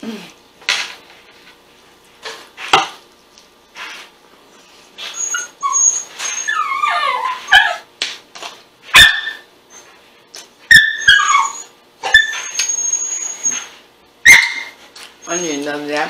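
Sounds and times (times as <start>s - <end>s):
dogs whining: 5.0s - 7.9s, 8.9s - 10.0s, 10.6s - 15.9s
dogs yipping: 5.0s - 7.9s, 8.9s - 9.9s, 10.6s - 15.8s.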